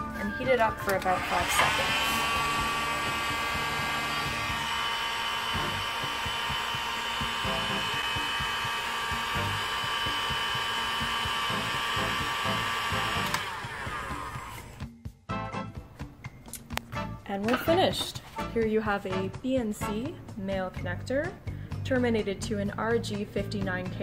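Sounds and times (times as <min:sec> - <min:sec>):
heat gun switch click: 0:00.8 - 0:01.1, 0:13.2 - 0:13.5
heat gun whine and air rush: 0:01.1 - 0:14.8.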